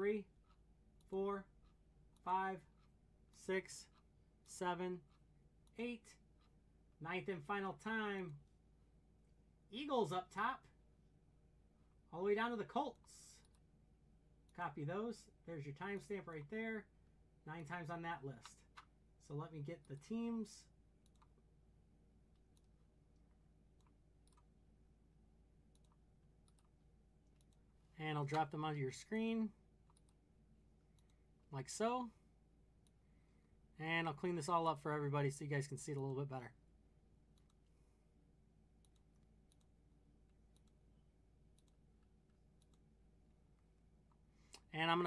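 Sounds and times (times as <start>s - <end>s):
computer mouse clicks: 12.9s - 13.7s, 21.0s - 21.5s, 22.3s - 24.5s, 25.7s - 27.7s, 29.9s - 30.2s, 30.9s - 31.2s, 37.3s - 37.7s, 38.8s - 40.8s, 41.5s - 42.9s
faint computer clicks: 21.0s - 21.4s, 38.8s - 39.8s.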